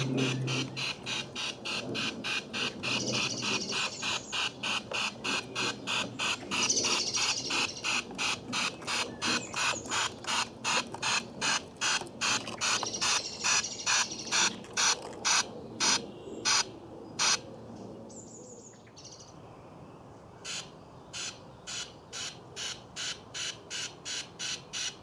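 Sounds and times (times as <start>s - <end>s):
birds chirping: 0.0s - 19.8s.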